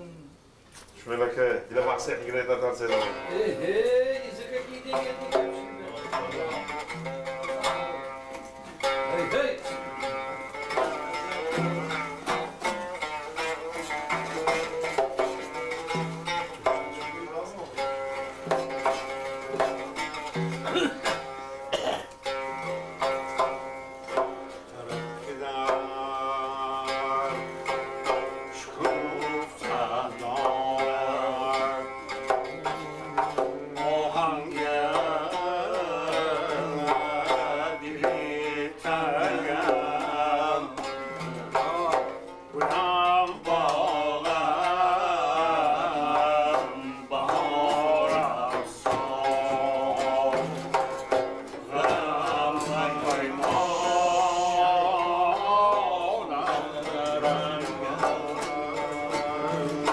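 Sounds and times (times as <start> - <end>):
plucked lute: 1.2 - 59.9
man singing: 1.9 - 17.2, 24.1 - 59.9
percussion beat: 2.8 - 59.9.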